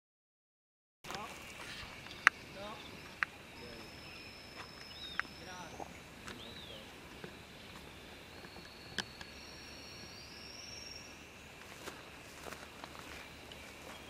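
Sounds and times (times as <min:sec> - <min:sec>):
high-pitched whine: 0:01.1 - 0:14.0
whistled note: 0:08.3 - 0:11.4.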